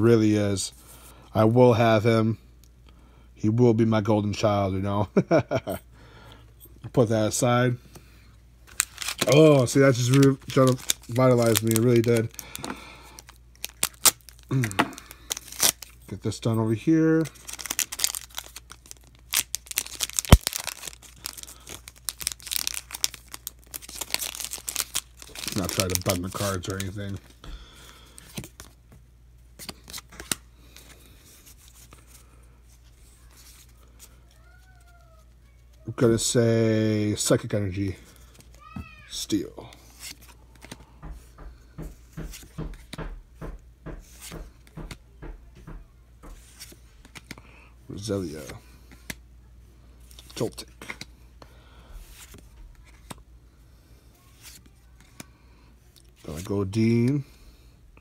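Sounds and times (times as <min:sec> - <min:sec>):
foil wrapper crinkling and tearing: 0:08.7 - 0:16.0, 0:16.8 - 0:27.3
trading cards flicking and rubbing: 0:08.7 - 0:16.1, 0:39.7 - 0:43.0, 0:43.9 - 0:45.0.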